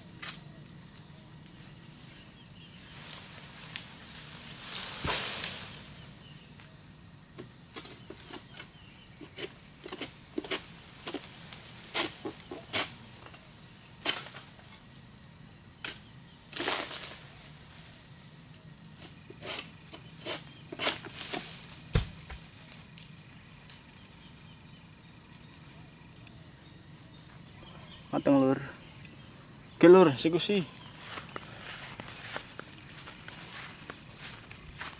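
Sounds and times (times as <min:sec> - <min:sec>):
insect chorus: 0:00.0 - 0:34.9
sickle cutting palm stalks: 0:00.2 - 0:00.4, 0:02.8 - 0:06.1, 0:07.7 - 0:13.4, 0:14.0 - 0:14.8, 0:15.8 - 0:17.3, 0:19.0 - 0:23.0.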